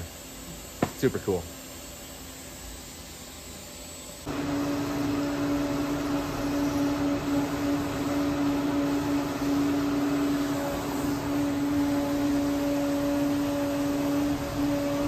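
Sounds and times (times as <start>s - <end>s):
coolant spray hiss: 0.0s - 15.0s
milling spindle high whine: 4.0s - 15.0s.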